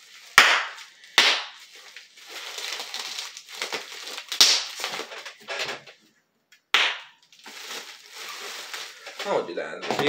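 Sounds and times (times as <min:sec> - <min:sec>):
bubble wrap crackling and popping: 0:00.0 - 0:05.4, 0:06.7 - 0:09.5
loud bubble wrap pop: 0:00.4 - 0:01.7, 0:02.7 - 0:05.2, 0:06.7 - 0:07.2.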